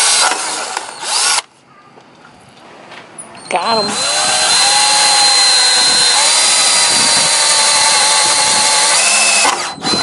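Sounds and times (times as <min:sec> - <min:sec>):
cordless drill motor whining: 0:00.0 - 0:01.5, 0:03.5 - 0:10.0.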